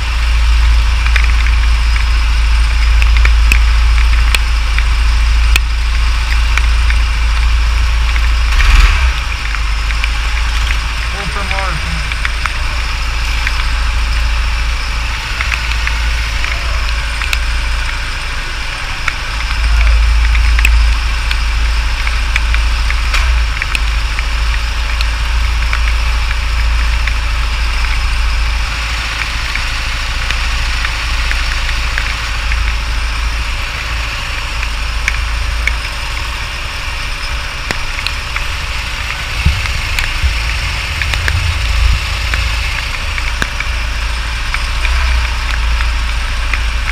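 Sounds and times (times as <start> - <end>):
go-kart engine idling: 0.0 - 46.9.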